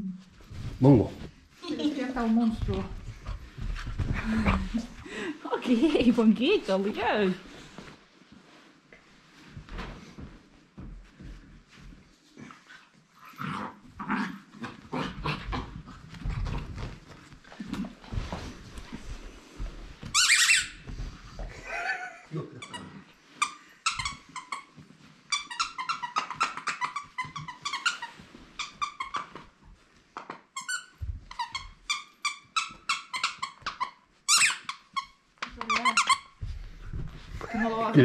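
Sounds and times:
squeaky dog toy squeaking: 20.2 - 20.8, 25.3 - 29.3, 30.6 - 36.3.

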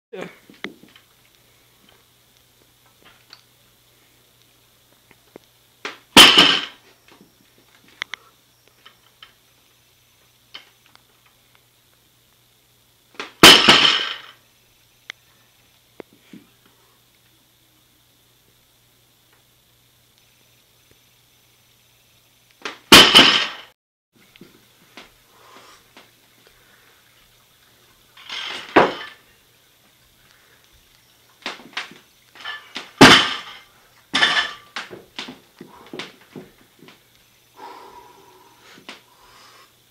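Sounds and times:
barbell thudding on floor: 6.2 - 6.8, 13.4 - 14.2, 22.9 - 23.6, 28.4 - 29.2, 32.4 - 33.6.

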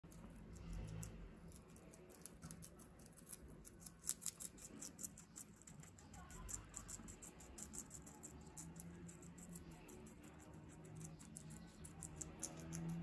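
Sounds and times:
guinea pigs chewing crunchy leaves: 0.0 - 13.0.

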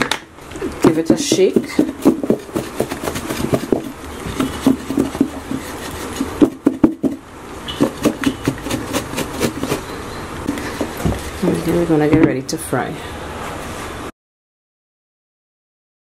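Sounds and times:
food rattling in plastic container: 0.8 - 7.2, 7.8 - 9.9.

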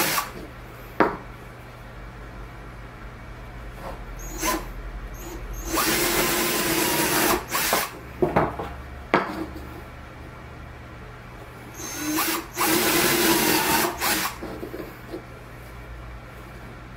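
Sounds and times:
cordless drill boring wood: 0.0 - 0.4, 5.2 - 7.9, 11.8 - 14.4.

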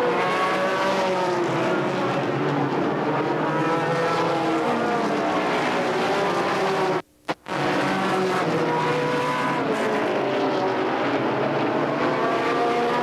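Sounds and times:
race car engines passing: 0.0 - 13.0.

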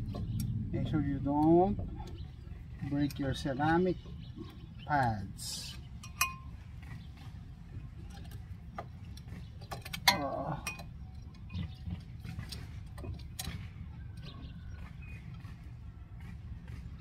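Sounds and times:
metallic clicks of brake pads: 0.0 - 2.4, 8.0 - 14.4
low hum: 0.0 - 17.0
ringing metal clink: 6.0 - 6.5.

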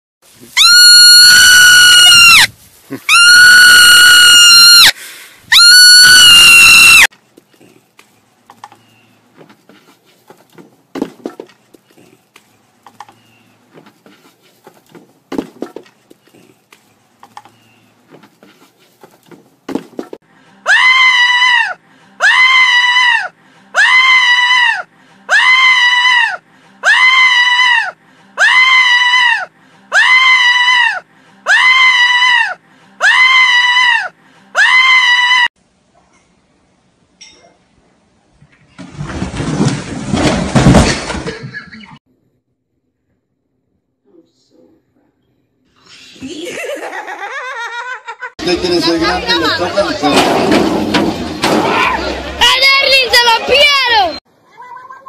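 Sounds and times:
marmot screaming: 0.6 - 2.5, 3.1 - 4.9, 5.5 - 7.1
shrill animal cries: 0.6 - 2.5.

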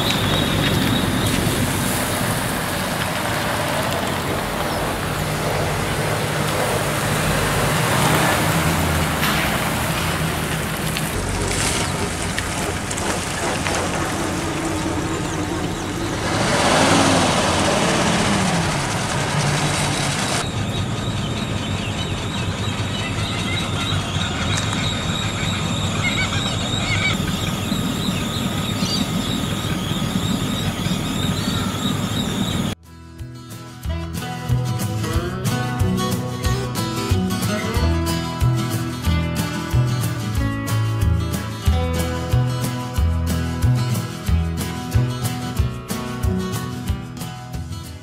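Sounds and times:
tyres hissing on wet road: 0.0 - 20.4
car engines running slowly: 0.0 - 32.8.

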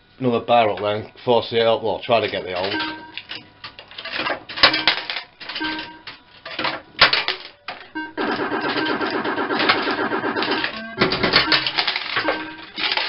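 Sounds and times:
electronic game tones: 2.7 - 3.2, 5.5 - 6.1, 7.9 - 12.8
short electronic bleeps: 10.4 - 12.7.

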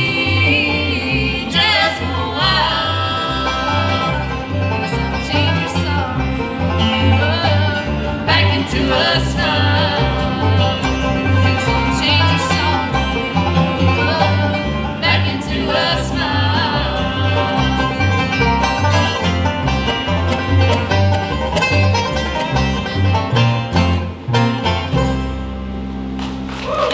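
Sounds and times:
woman singing: 0.0 - 4.3, 6.9 - 13.0, 13.7 - 18.0
bluegrass band playing: 0.0 - 26.7
upright bass walking: 0.0 - 26.9.

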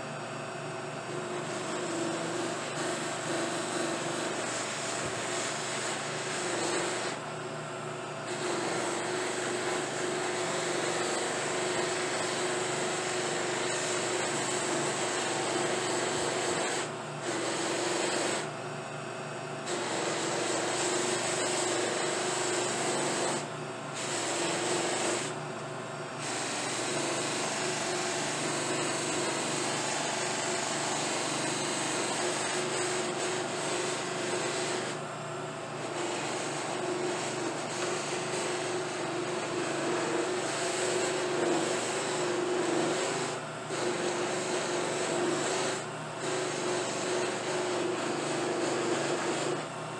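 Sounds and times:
buffing machine hum: 19.6 - 49.8.

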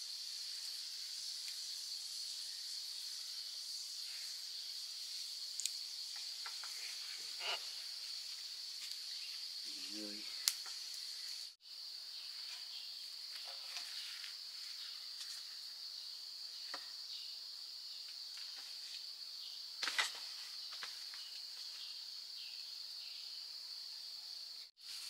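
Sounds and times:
insects droning: 0.0 - 25.0.

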